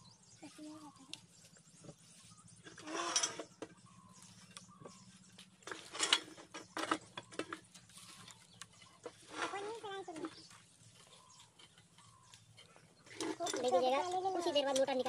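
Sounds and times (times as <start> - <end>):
pipe clattering and scraping: 1.8 - 15.0.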